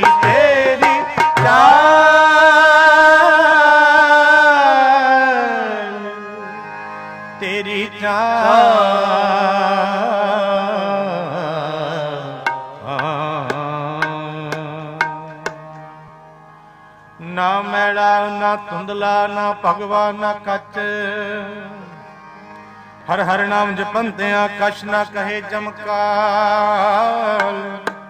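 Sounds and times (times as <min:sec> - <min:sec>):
tabla strokes: 0:00.0 - 0:02.2, 0:12.4 - 0:16.0, 0:27.4 - 0:28.0
musical accompaniment: 0:00.0 - 0:09.5, 0:12.2 - 0:18.2
person singing devotional song: 0:00.0 - 0:28.0.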